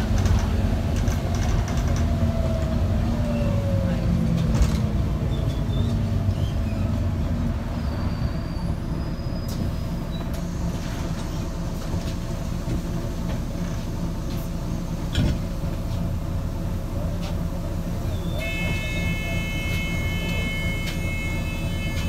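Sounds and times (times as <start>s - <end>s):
bus diesel engine drone: 0.0s - 22.0s.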